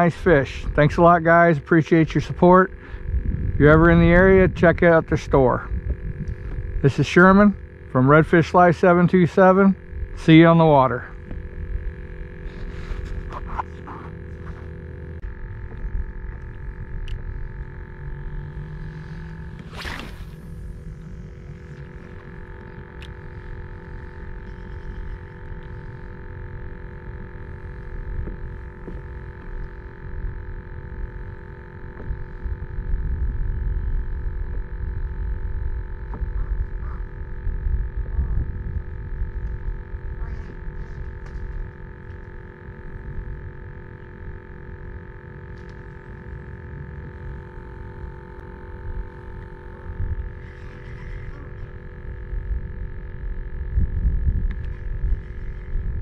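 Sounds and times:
faint steady hum: 0.0 - 56.0
wind buffeting microphone: 2.6 - 7.9, 32.0 - 41.6, 51.4 - 56.0.

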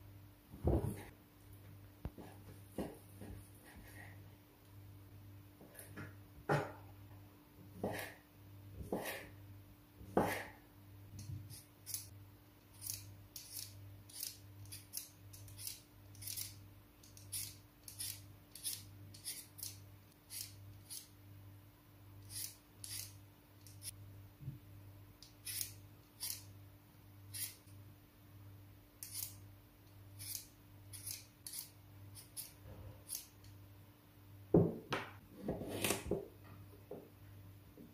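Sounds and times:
peeler scraping potatoes: 12.7 - 21.2, 22.2 - 24.0, 25.2 - 26.5, 27.3 - 27.7, 29.0 - 29.4, 30.2 - 33.4.

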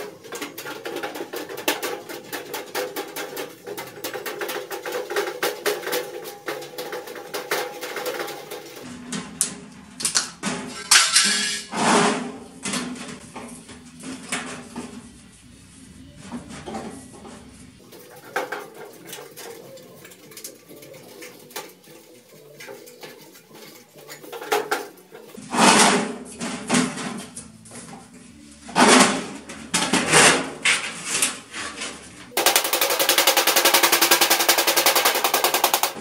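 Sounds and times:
fast rattle of strikes: 0.0 - 8.9, 32.4 - 36.0
sheet metal clicks and crinkles: 0.0 - 11.7, 17.8 - 27.5, 28.8 - 36.0.

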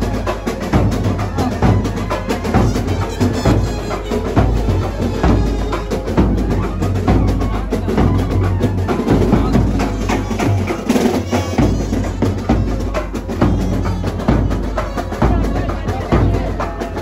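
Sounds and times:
fast drumming: 0.0 - 17.0
saxophone melody: 0.1 - 17.0.

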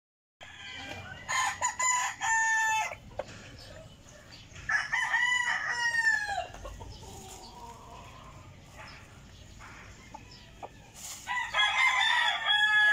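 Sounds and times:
rooster crowing: 0.4 - 3.0, 4.7 - 6.5, 10.0 - 12.9.

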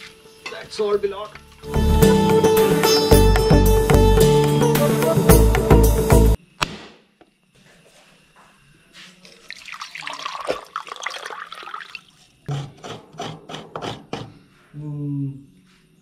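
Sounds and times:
water pouring into steel pot: 9.3 - 12.4.

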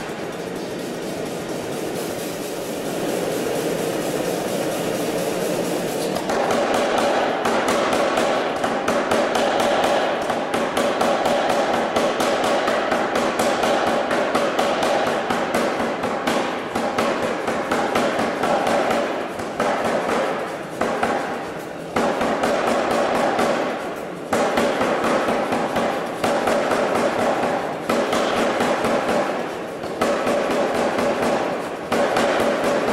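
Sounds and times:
motor and compressor running: 0.0 - 8.6
power hammer striking hot steel: 4.8 - 21.4, 22.0 - 32.9.

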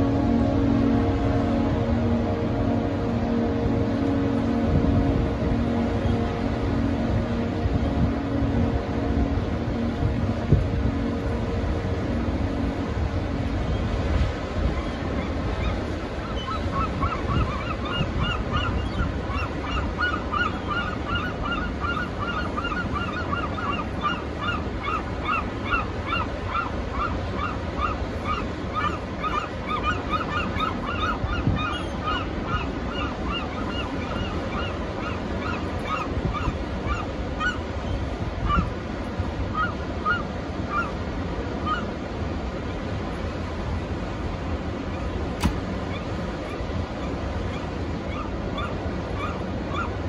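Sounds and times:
strong wind: 0.0 - 50.0
surf rumbling: 0.0 - 50.0
flock of birds calling: 13.6 - 38.8, 45.0 - 50.0.

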